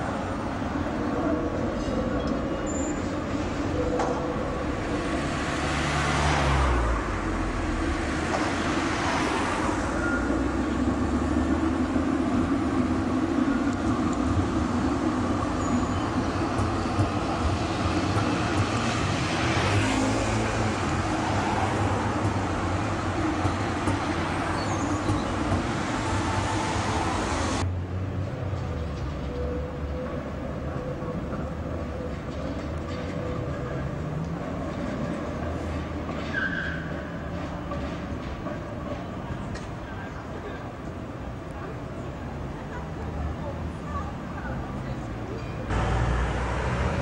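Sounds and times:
trams running on rails: 0.0 - 47.0
car driving past: 4.6 - 11.8.

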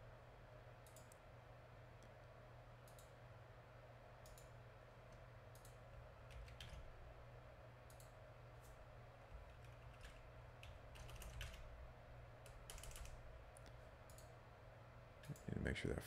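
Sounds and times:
low steady hum: 0.0 - 16.0
computer mouse clicks: 0.8 - 1.2, 2.8 - 3.2, 4.2 - 6.9, 7.9 - 8.8, 12.4 - 14.4.

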